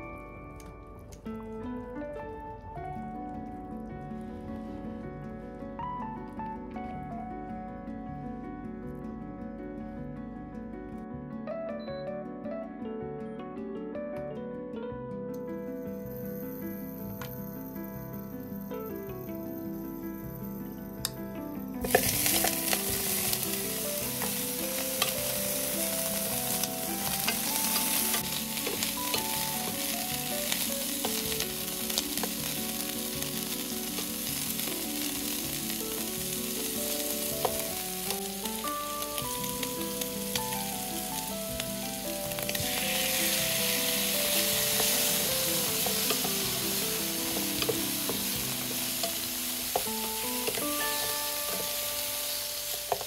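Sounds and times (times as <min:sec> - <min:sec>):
utensil clicking against pan: 0:21.8 - 0:32.6, 0:44.3 - 0:50.8
food sizzling in a pan: 0:21.8 - 0:53.0.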